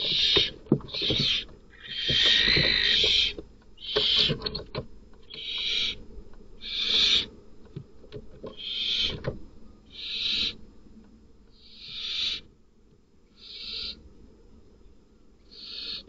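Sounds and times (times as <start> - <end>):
owls hissing: 0.0 - 4.4, 5.3 - 6.0, 6.6 - 7.3, 8.6 - 9.2, 9.9 - 10.6, 11.6 - 12.5, 13.3 - 14.0, 15.5 - 16.0.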